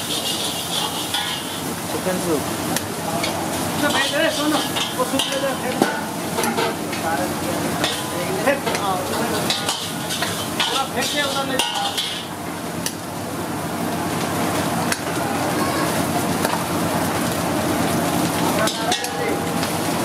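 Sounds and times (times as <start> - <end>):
liquid sizzling in a pan: 0.0 - 20.0
metal ladle clinking on a wok: 7.8 - 10.9, 11.6 - 12.3.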